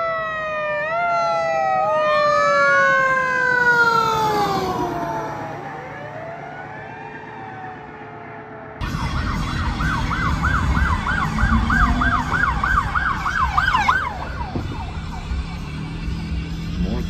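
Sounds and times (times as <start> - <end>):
electronic siren yelping: 0.0 - 16.0
low car rumble: 8.6 - 17.0.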